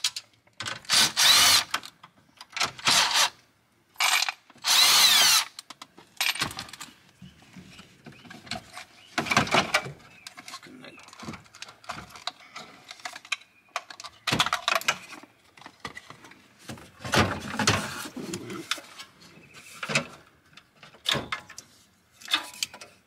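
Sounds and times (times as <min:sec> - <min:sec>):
scraping rustle: 0:15.7 - 0:20.3.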